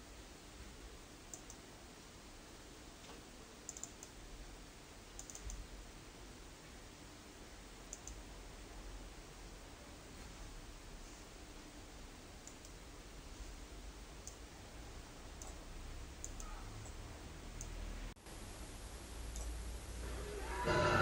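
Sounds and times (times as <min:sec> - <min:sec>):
faint low hum: 0:00.0 - 0:21.0
computer mouse clicking: 0:01.3 - 0:01.6, 0:03.1 - 0:04.2, 0:05.1 - 0:05.7, 0:07.9 - 0:08.2, 0:12.4 - 0:12.8, 0:14.2 - 0:14.5, 0:15.4 - 0:15.6, 0:16.2 - 0:17.8, 0:19.3 - 0:19.5.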